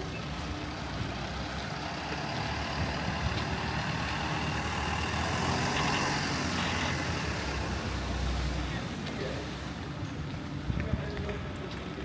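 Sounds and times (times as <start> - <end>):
heavy vehicle engine running: 0.0 - 7.7
road noise: 0.0 - 12.0.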